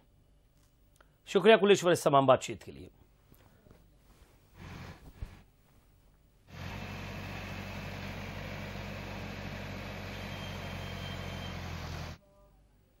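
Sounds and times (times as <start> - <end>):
diesel engine running: 6.5 - 12.2.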